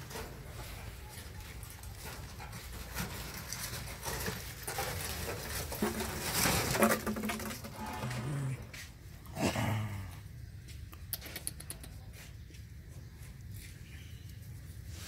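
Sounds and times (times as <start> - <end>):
dog low vocal sounds: 7.8 - 10.3.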